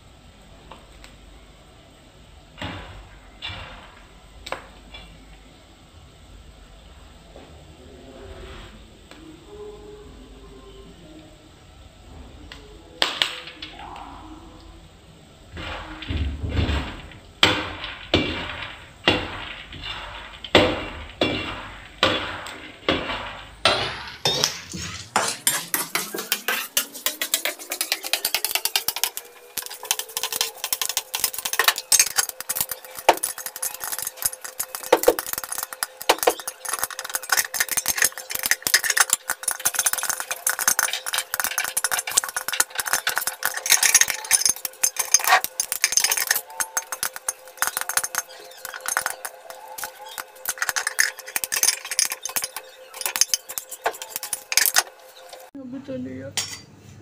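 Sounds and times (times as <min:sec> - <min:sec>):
popcorn popping: 0:15.5 - 0:55.5
metal spoon scraping pan: 0:19.2 - 0:55.5.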